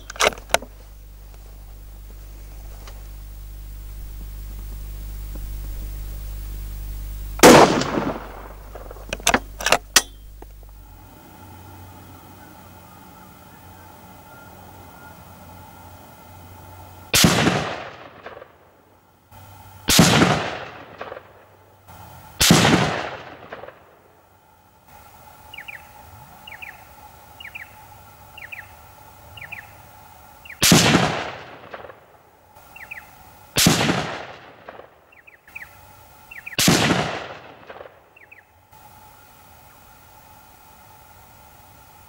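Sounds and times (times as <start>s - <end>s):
rifle shots: 7.4s - 10.4s, 17.1s - 18.7s, 19.9s - 21.5s, 22.4s - 24.0s, 30.6s - 32.2s, 33.6s - 35.0s, 36.5s - 38.1s.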